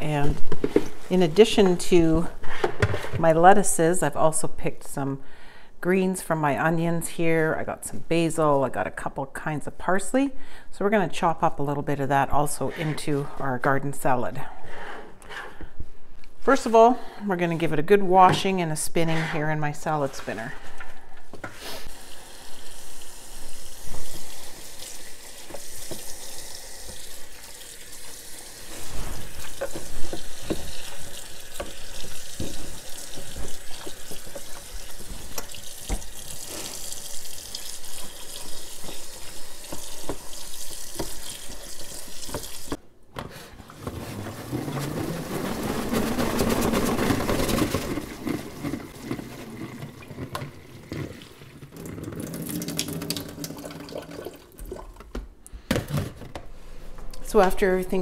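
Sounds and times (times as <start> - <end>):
faucet sprayer water running: 21.9 - 42.8.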